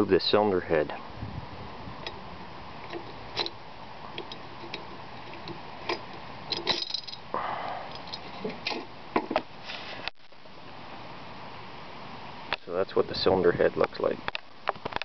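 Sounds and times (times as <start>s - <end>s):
brief hiss: 9.6s - 10.1s.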